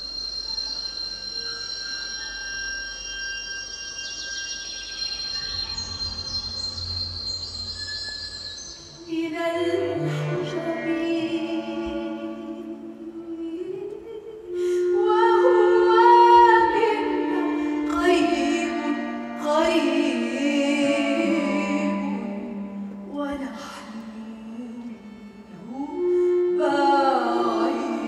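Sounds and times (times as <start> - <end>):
oud strings and double bass: 5.3 - 13.8.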